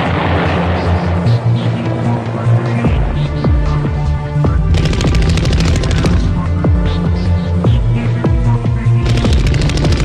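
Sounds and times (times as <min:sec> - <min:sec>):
dramatic soundtrack music: 0:00.0 - 0:10.0
automatic gunfire: 0:04.7 - 0:06.3, 0:09.0 - 0:10.0.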